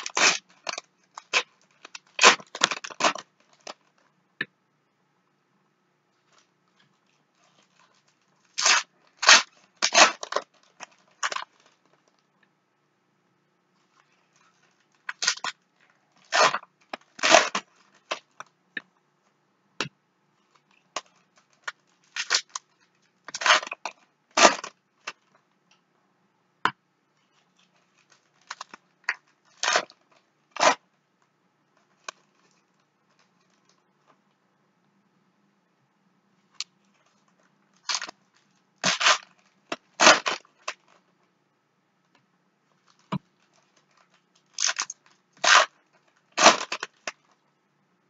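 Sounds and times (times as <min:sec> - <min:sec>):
foil wrappers crinkling: 0:00.0 - 0:04.0, 0:07.4 - 0:12.2, 0:37.8 - 0:41.0, 0:42.8 - 0:47.4.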